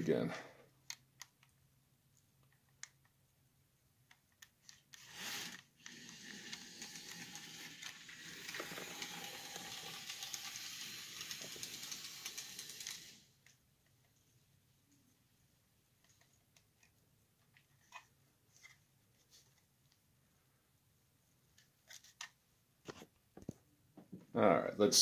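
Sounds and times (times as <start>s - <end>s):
model train running on track: 5.4s - 13.2s
small track clicks: 5.9s - 13.2s.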